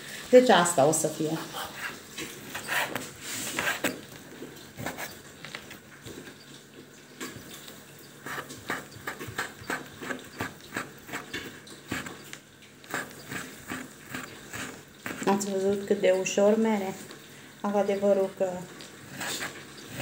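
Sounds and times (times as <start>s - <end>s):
knife chopping on wooden board: 8.3s - 12.2s, 12.9s - 15.4s.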